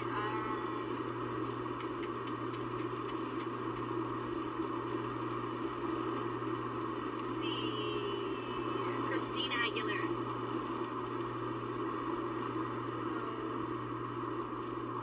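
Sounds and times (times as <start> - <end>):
light ticking: 1.4 - 3.9.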